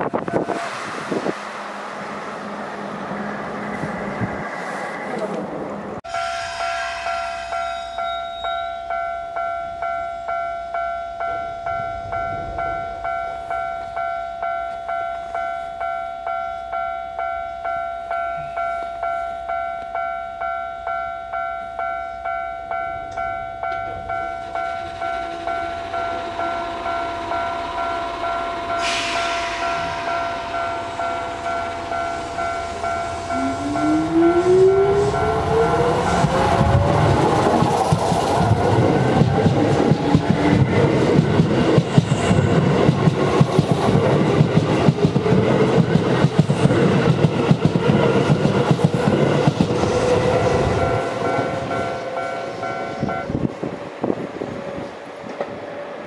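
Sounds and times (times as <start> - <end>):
level crossing warning bell: 6.0 - 37.0, 50.5 - 53.4
train motor whine: 23.1 - 42.7.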